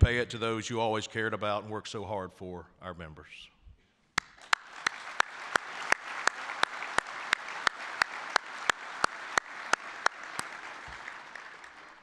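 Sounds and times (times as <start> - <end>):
audience applauding: 4.2 - 12.0
man clapping close to microphone: 4.2 - 12.0.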